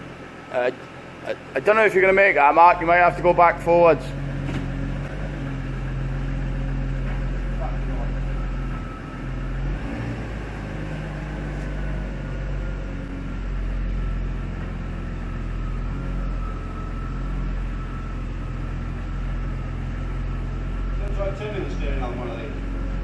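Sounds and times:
car engine idling: 0.0 - 23.0.

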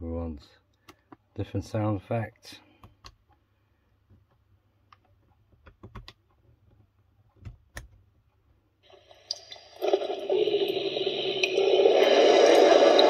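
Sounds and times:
spooky sound effect from speaker: 9.9 - 13.0.

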